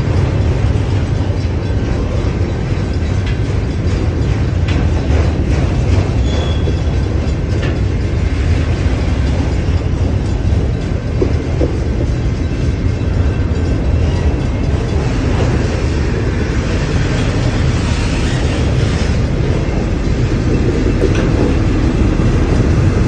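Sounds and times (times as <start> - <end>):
freight cars rumbling on rails: 0.0 - 23.0.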